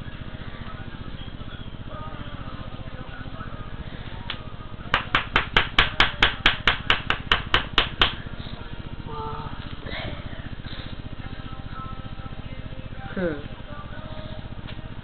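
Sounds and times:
steady low hum: 0.0s - 15.0s
sharp knocks: 4.9s - 8.2s.

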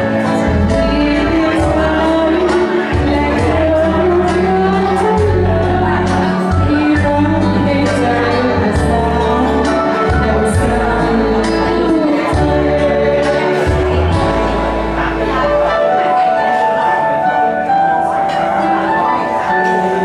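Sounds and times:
woman singing into microphone: 0.0s - 17.5s
karaoke backing track: 0.0s - 20.0s.

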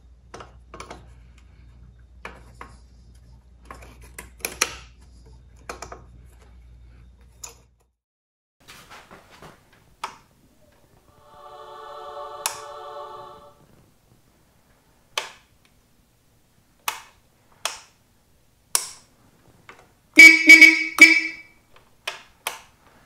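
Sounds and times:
motorcycle electric horn blasts: 20.2s - 21.5s.

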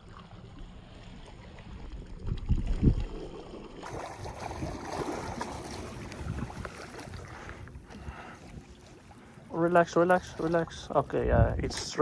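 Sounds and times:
wind on microphone: 3.9s - 8.8s, 11.1s - 12.0s.

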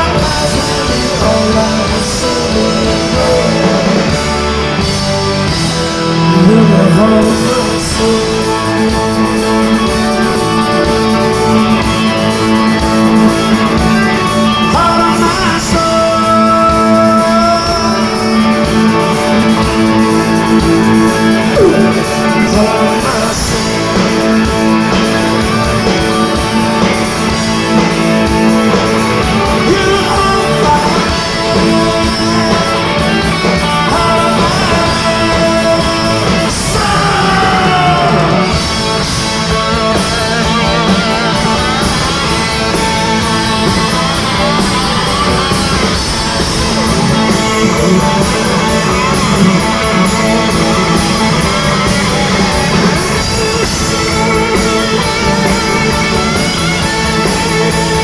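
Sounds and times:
person singing: 0.0s - 4.9s, 6.0s - 58.0s
distorted electric guitars: 0.0s - 58.0s
drums: 0.0s - 58.0s.

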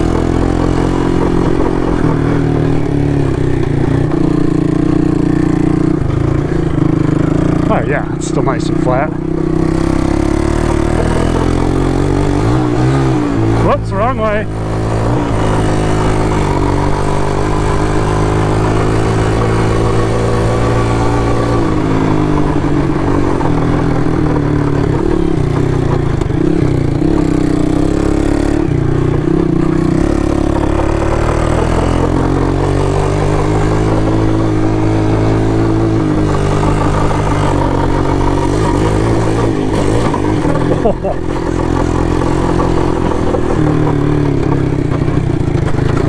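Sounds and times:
three-wheeler engine revving: 0.0s - 46.0s.

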